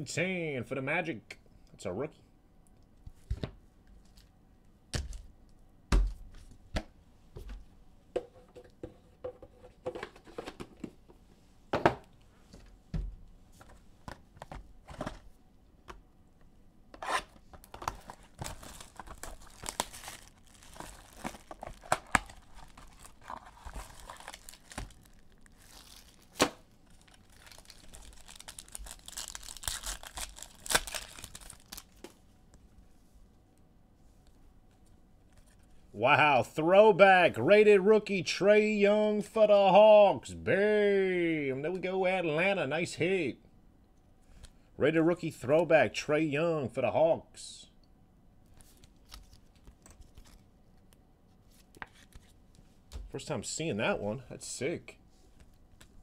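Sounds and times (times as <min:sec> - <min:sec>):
wrappers torn and crinkled: 0:17.9 - 0:32.1.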